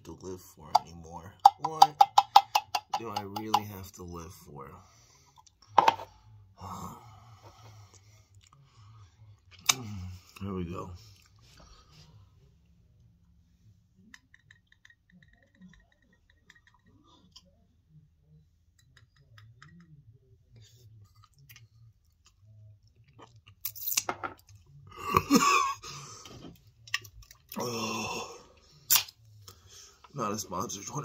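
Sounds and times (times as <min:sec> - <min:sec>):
man chewing and swallowing: 0:07.3 - 0:10.4, 0:11.0 - 0:12.2, 0:20.6 - 0:24.9, 0:25.9 - 0:27.8
man coughing and sputtering: 0:24.9 - 0:25.9
wet mouth clicks: 0:28.9 - 0:29.2.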